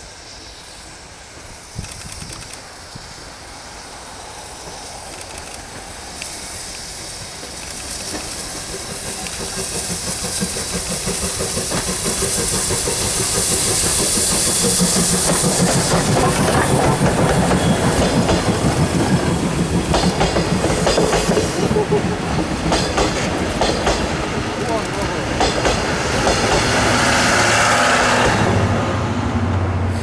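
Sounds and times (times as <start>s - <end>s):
steam locomotive hissing: 0.0s - 30.0s
train wheels clattering over rail joints: 7.3s - 27.0s.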